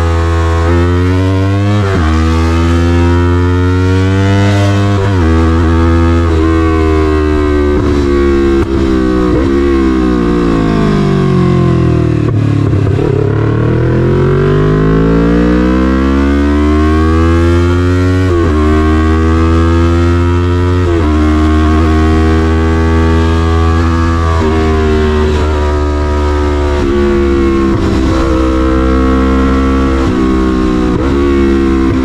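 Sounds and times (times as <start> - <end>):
motorcycle engine accelerating: 0.0 - 32.0
gear changes: 1.8 - 11.2, 17.4 - 32.0.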